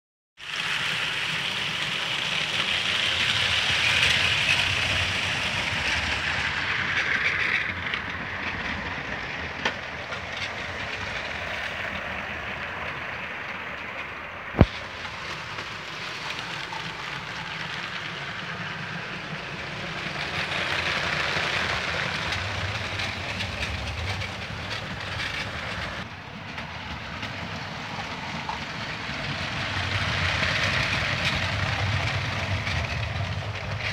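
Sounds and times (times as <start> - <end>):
toy trains rattling on plastic track: 0.5 - 12.1, 14.6 - 26.1, 27.2 - 33.9.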